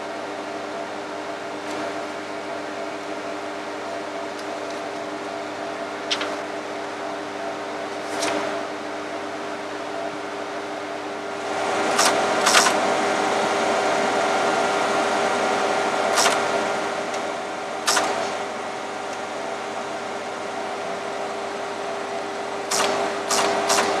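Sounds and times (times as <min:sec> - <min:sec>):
cooling fans humming: 0:00.0 - 0:24.0
printing terminal clacks: 0:10.9 - 0:12.9, 0:22.7 - 0:24.0
mechanical whirr: 0:11.3 - 0:19.2, 0:22.6 - 0:24.0.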